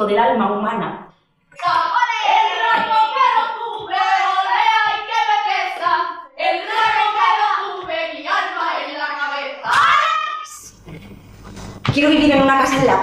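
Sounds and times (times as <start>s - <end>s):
women singing lively song: 1.6s - 10.0s, 11.9s - 13.0s.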